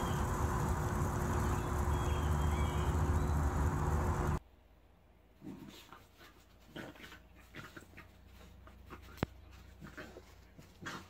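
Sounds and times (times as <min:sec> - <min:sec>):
dog panting and snuffling: 0:05.5 - 0:11.0.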